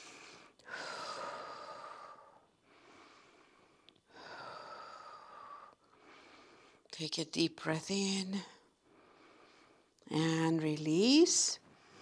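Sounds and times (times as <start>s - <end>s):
woman breathing: 0.0s - 6.9s, 8.6s - 10.0s, 11.6s - 12.0s.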